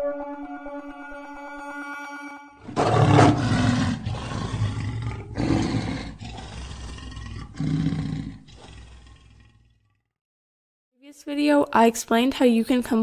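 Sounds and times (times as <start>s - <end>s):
lion roaring: 2.6s - 10.1s.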